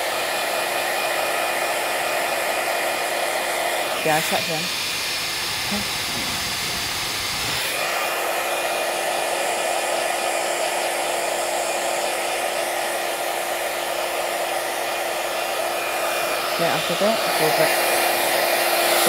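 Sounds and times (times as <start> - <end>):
fan blowing whoosh: 3.3 - 8.7.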